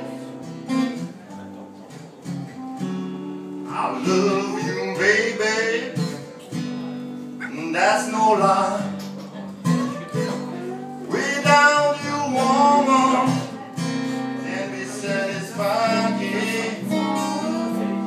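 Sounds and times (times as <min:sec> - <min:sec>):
acoustic guitar strumming: 0:00.0 - 0:18.0
person singing: 0:03.7 - 0:06.5, 0:09.8 - 0:18.0.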